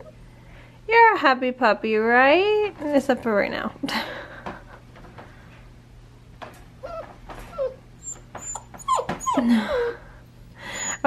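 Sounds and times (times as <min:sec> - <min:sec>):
puppy whimpering: 0:06.8 - 0:10.1, 0:10.8 - 0:11.0.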